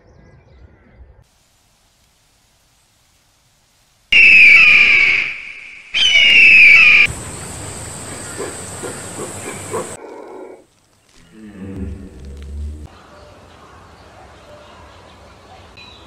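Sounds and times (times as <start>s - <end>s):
hissing background noise: 1.2s - 16.0s
eagle screeching: 4.2s - 7.1s.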